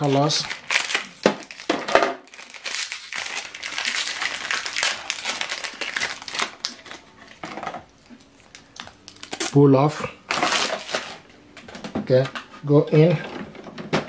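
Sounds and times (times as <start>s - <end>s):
foil packaging crinkling: 0.0s - 9.6s, 10.3s - 11.2s.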